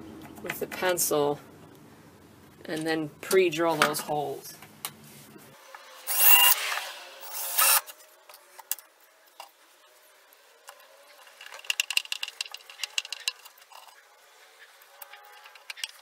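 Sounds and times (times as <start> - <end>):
cordless drill boring: 6.0 - 7.9.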